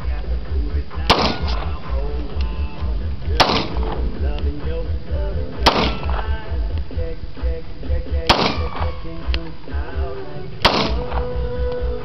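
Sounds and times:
music with pulsing bass beat: 0.0 - 12.0
pistol shots: 1.0 - 1.8, 3.3 - 4.1, 5.6 - 6.4, 8.2 - 9.0, 10.6 - 11.4.

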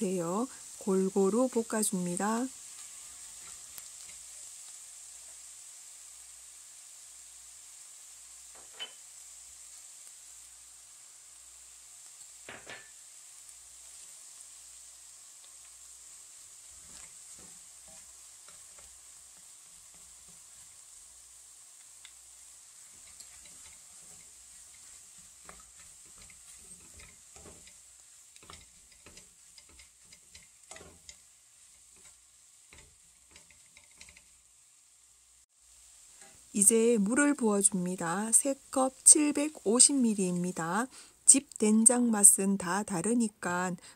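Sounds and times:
faint sizzle of stir-frying: 0.0 - 43.9
utensil scraping and tapping pan: 12.5 - 12.9, 16.8 - 20.4, 22.9 - 34.4.

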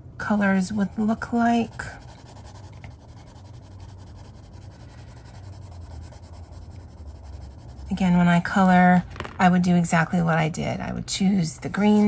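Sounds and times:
colored pencil scratching on paper: 0.3 - 8.6.

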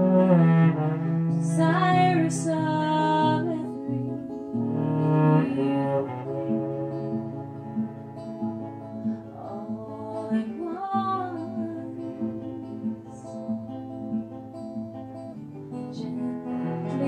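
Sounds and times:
cello sustained low notes: 0.0 - 9.9, 16.4 - 17.0
acoustic guitar: 0.0 - 17.0
woman singing: 1.3 - 4.3, 5.3 - 6.2, 9.2 - 13.5, 16.7 - 17.0.

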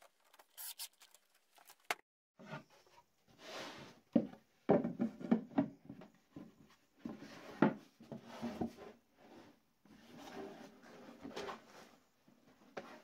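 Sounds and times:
wooden knocks and clatters: 4.1 - 8.2.

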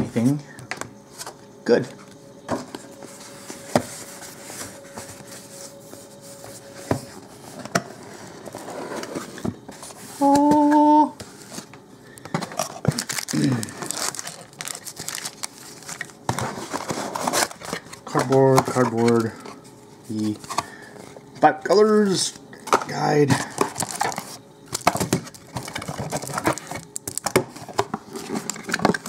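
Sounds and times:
person humming a note: 10.2 - 11.2
plastic wrapping crinkling and tearing: 12.6 - 19.3.

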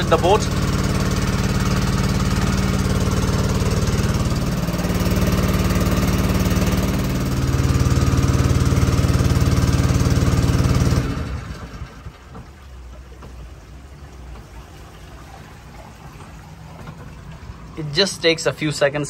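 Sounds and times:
boat engine running: 0.0 - 19.0.

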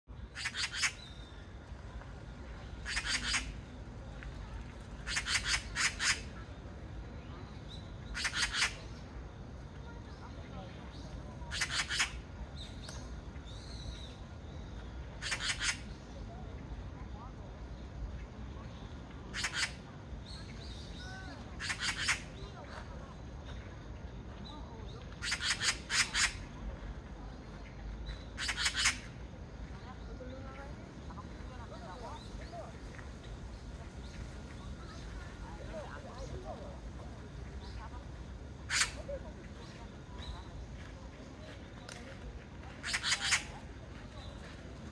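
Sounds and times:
magpie rattling chatter call: 0.3 - 1.3, 2.7 - 3.6, 4.9 - 6.6, 8.0 - 9.0, 10.9 - 12.2, 15.2 - 16.2, 19.3 - 22.5, 25.2 - 26.6, 28.1 - 29.2, 38.6 - 39.2, 42.8 - 44.3.

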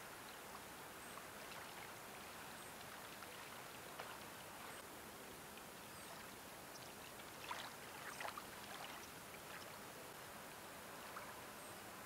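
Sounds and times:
water lapping and trickling: 0.2 - 10.2
soft water splashes: 0.5 - 10.2.

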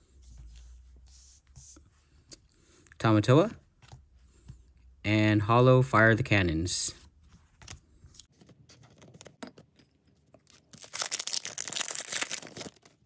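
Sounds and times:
wrapper crinkling and tearing: 10.4 - 13.0.

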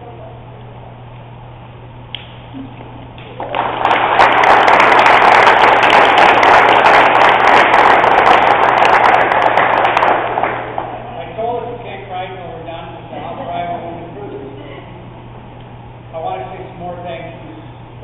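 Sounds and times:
crowd applause: 3.2 - 11.1.

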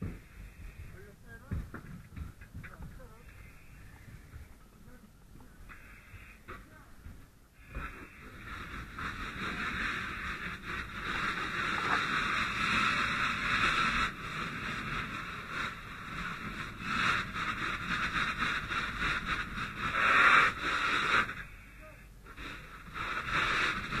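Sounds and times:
fire hose water hiss: 5.6 - 24.0.

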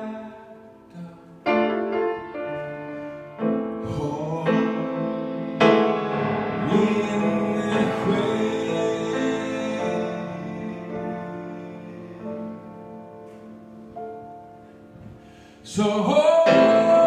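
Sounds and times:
man singing: 0.0 - 2.2, 3.6 - 13.4, 15.6 - 17.0
piano chords: 0.0 - 17.0.

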